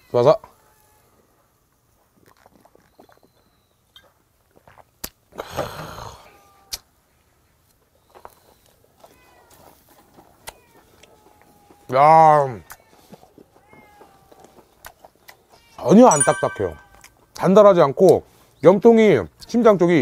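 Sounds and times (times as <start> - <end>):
cat meowing: 13.6 - 14.4.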